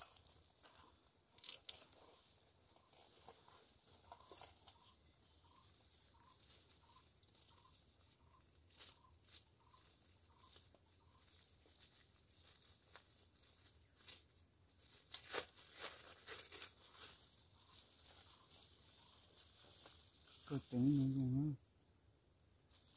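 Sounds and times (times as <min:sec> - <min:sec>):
plastic bags crinkling: 0:05.6 - 0:21.4.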